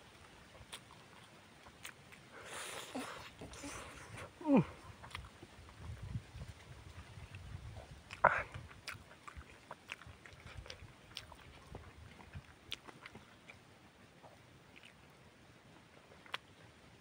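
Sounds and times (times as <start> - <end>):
chewing and lip smacking: 0.0 - 17.0.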